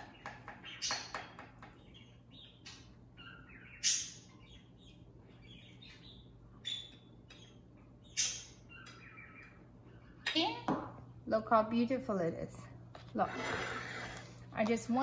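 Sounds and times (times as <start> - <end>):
metal utensil scraping ceramic dish: 13.2 - 14.4.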